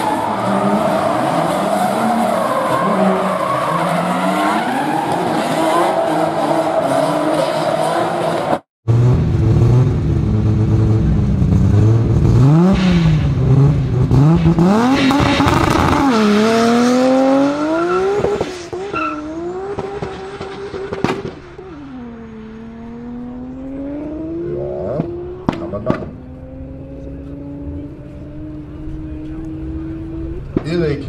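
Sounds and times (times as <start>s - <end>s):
car engine revving and accelerating: 0.0s - 31.0s
sharp crack: 19.8s - 21.5s.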